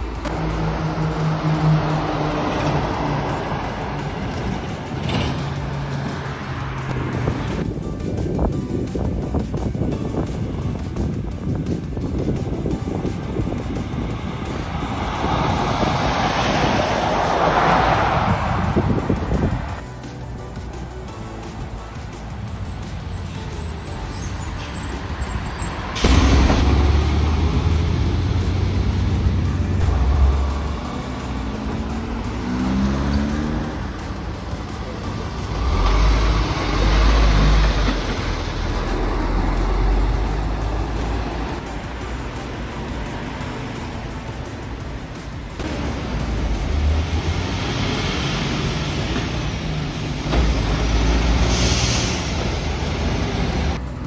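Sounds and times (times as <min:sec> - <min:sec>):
diesel truck driving past: 0:00.0 - 0:07.6, 0:22.7 - 0:44.3, 0:45.4 - 0:54.0
tyre and road noise: 0:00.0 - 0:54.0.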